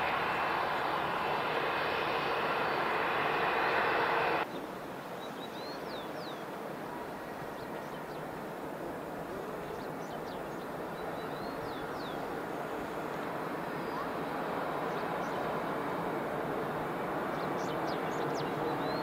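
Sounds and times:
jet engines rushing: 0:00.0 - 0:04.5.

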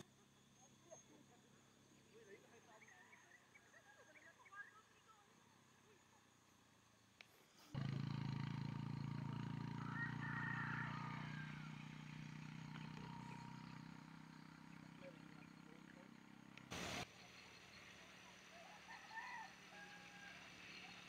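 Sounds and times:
vehicle engine humming: 0:07.8 - 0:18.4.

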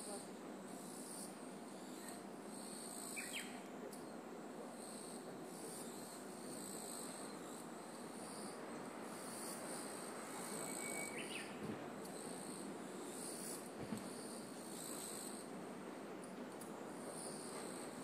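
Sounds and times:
insects singing: 0:04.8 - 0:15.4.

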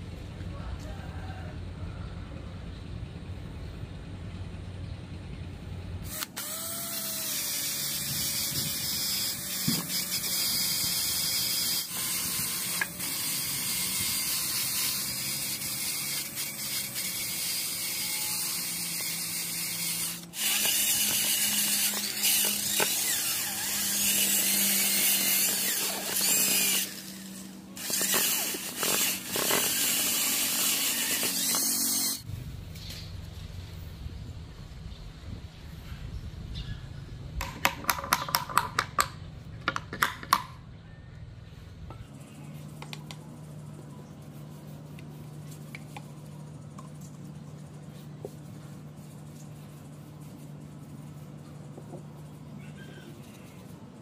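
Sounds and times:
electric power tool on wood: 0:06.0 - 0:32.3.

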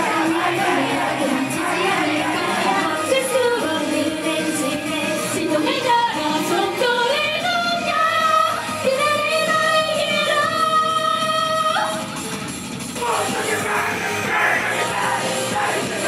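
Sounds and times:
woman singing: 0:00.0 - 0:12.0
pop backing track: 0:00.0 - 0:16.0.

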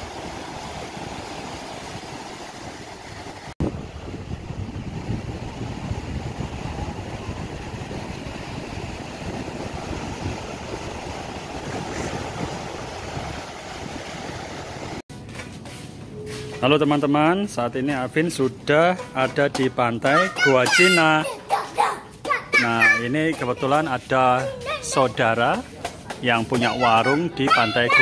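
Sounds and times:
waves breaking on beach: 0:00.0 - 0:15.0
wind rumbling on microphone: 0:00.0 - 0:15.0.

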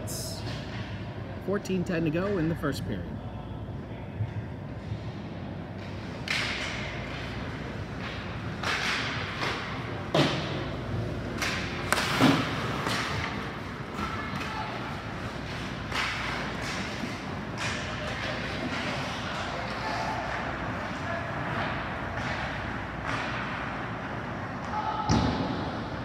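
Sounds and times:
hockey sticks striking puck: 0:05.8 - 0:26.0.

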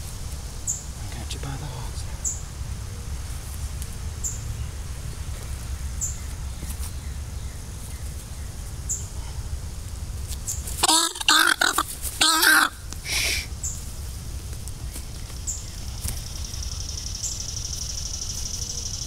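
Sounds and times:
harsh peafowl calls: 0:10.4 - 0:13.9.

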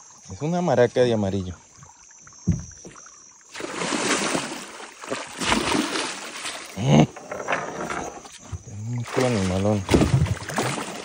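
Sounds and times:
fish thrashing and splashing water: 0:03.5 - 0:11.0.

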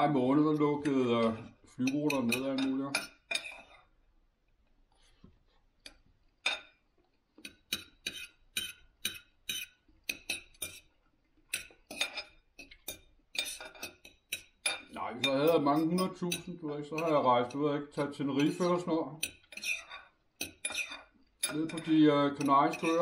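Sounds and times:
cutlery clinking on a plate: 0:01.3 - 0:03.9, 0:07.4 - 0:10.9, 0:11.5 - 0:17.6, 0:18.3 - 0:23.0.

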